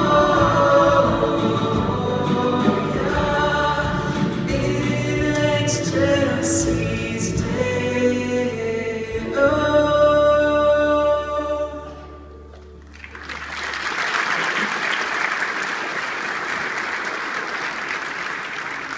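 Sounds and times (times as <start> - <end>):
choir singing with instruments: 0.0 - 12.3
audience applause: 12.9 - 18.9.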